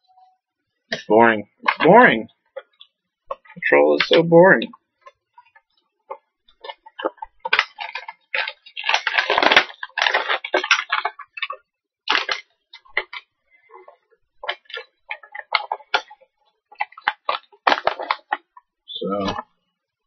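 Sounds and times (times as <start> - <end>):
cardboard and plastic crinkling: 6.6 - 13.2, 16.8 - 18.6.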